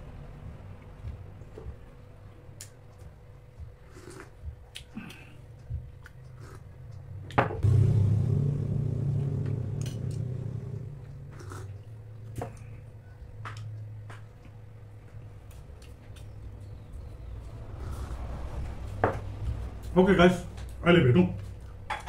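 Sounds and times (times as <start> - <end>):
low rumble: 5.5 - 20.8.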